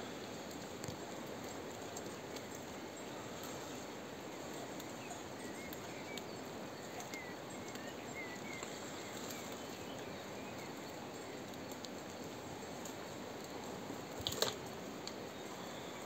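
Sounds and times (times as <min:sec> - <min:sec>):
steady hiss: 0:00.0 - 0:16.0
faint bird chirps: 0:03.0 - 0:11.5.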